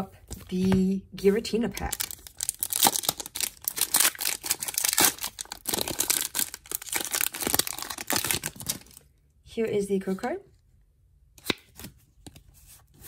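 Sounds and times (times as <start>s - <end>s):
foil wrapper tearing and crinkling: 1.8s - 9.0s.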